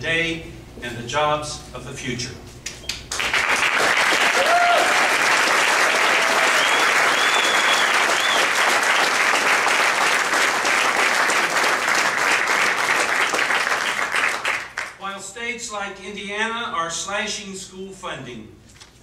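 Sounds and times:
crowd applauding: 3.1 - 15.0
cheers: 3.7 - 9.1.

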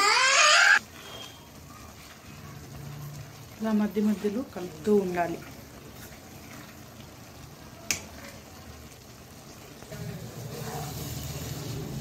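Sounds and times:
spatula stirring noodles in pan: 0.8 - 12.0.

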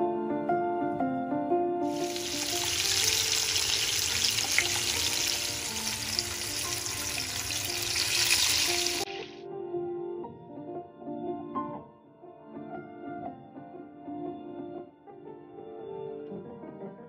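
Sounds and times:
chicken frying in hot oil: 1.9 - 9.4.

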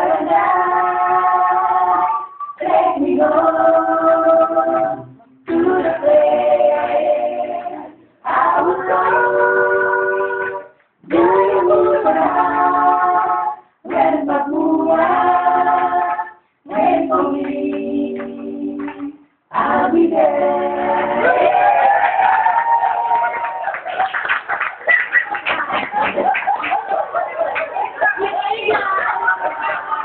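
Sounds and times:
group singing unaccompanied: 0.0 - 23.6.

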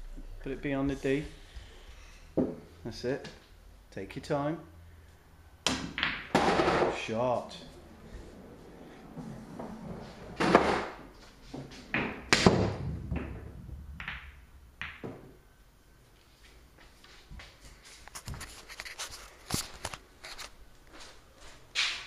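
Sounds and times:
billiard balls clacking: 5.6 - 7.1, 9.0 - 11.1, 11.7 - 15.4
pool cue striking ball: 5.7 - 7.0, 11.9 - 15.3.

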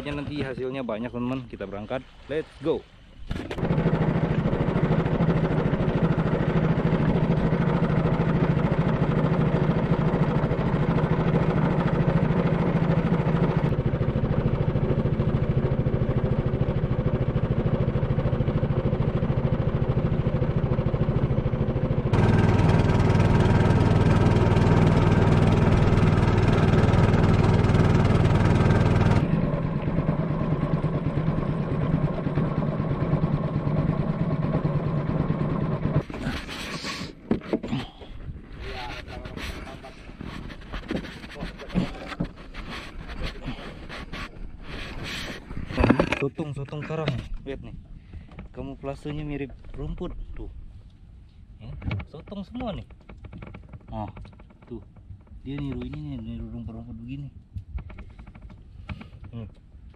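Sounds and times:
boat engine droning: 0.0 - 51.6.

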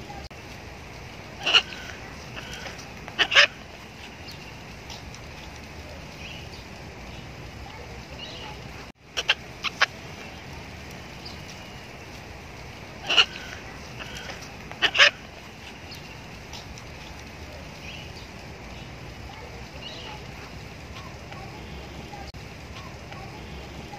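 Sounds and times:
macaw squawking harshly: 1.4 - 3.6, 9.2 - 10.0, 13.0 - 15.3.

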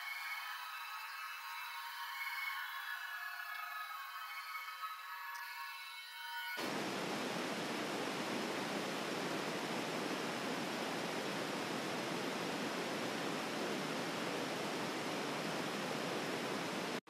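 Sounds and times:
tape static hiss: 6.6 - 17.0.

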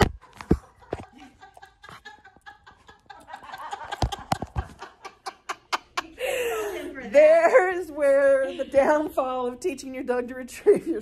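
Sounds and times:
phone microphone handling noise: 0.0 - 1.1
people laughing softly: 0.1 - 7.1.

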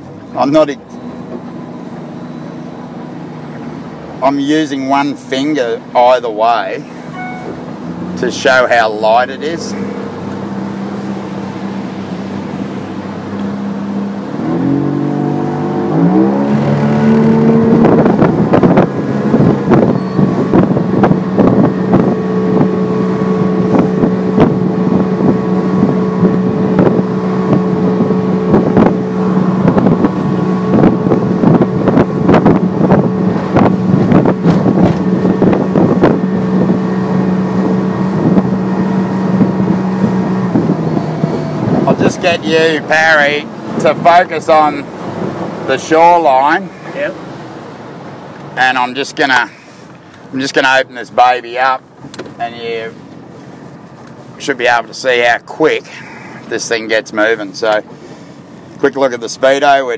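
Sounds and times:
outboard motor revving: 0.3 - 59.9
wind on microphone: 9.7 - 44.0
hull thumping on waves: 16.4 - 42.0.

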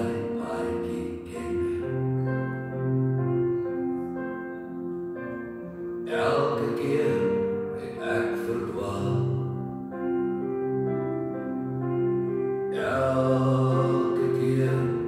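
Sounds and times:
person singing: 0.0 - 3.0, 6.0 - 9.6, 12.7 - 15.0
recorded song over sound system: 0.0 - 10.3, 11.9 - 15.0
slow held instrumental chords: 0.0 - 15.0.

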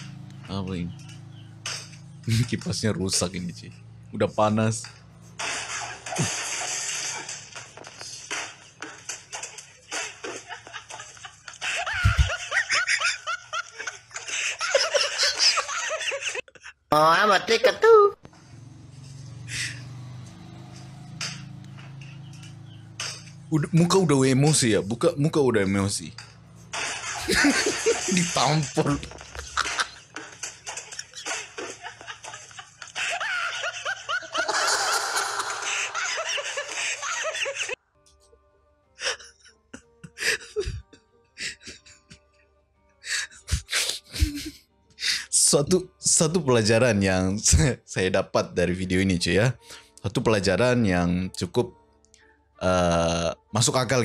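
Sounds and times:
man laughing hard: 10.2 - 16.8, 27.2 - 28.3, 29.0 - 37.8, 39.0 - 42.3, 43.2 - 44.6.

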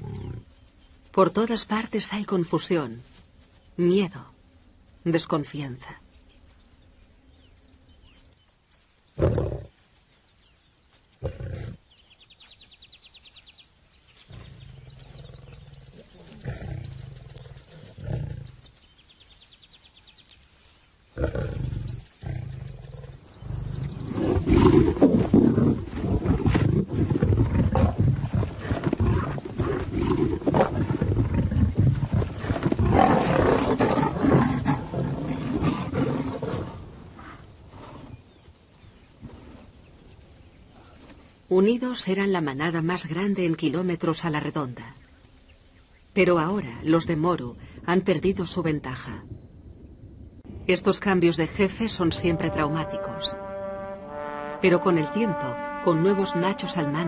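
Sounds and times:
lions snarling and growling: 9.2 - 9.7, 11.2 - 11.8, 14.3 - 18.7, 21.2 - 38.3.

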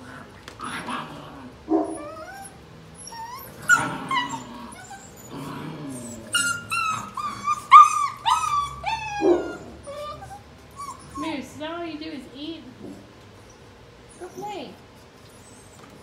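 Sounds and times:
puppies whimpering and yelping: 1.5 - 11.6, 13.3 - 16.0.

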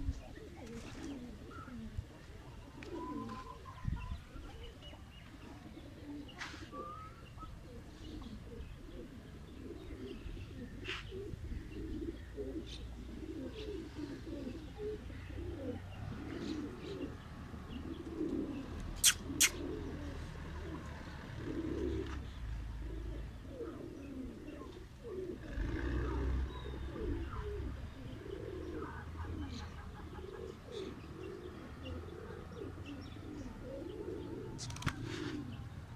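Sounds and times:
pigeons cooing: 0.0 - 35.9.

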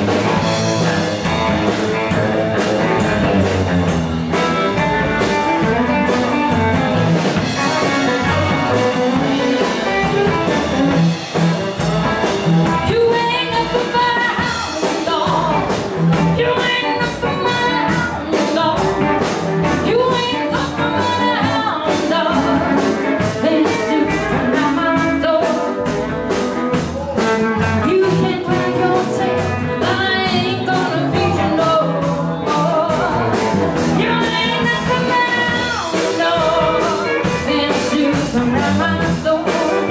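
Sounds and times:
rock and roll band playing: 0.0 - 39.9
woman singing: 12.7 - 26.1, 27.6 - 39.9.

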